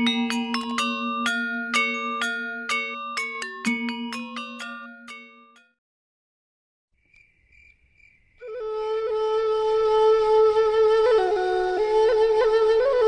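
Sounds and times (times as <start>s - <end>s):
bamboo flute melody: 8.4s - 13.0s.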